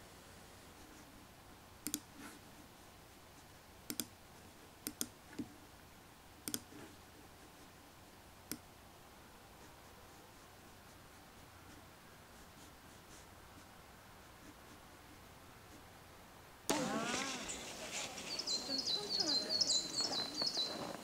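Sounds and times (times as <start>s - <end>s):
faint room hiss: 0.0s - 21.0s
computer mouse clicking: 1.8s - 2.3s, 3.9s - 4.2s, 4.8s - 5.5s, 6.4s - 6.8s, 8.4s - 8.7s.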